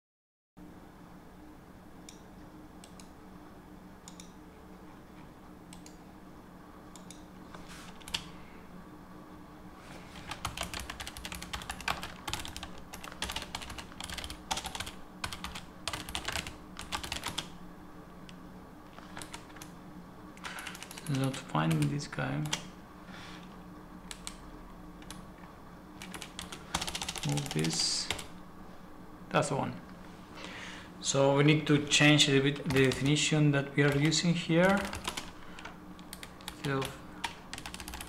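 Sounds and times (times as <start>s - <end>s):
typing on computer keyboard: 10.2s - 17.5s, 19.0s - 19.7s, 20.4s - 21.9s, 26.0s - 28.3s, 32.6s - 33.1s, 33.9s - 38.0s.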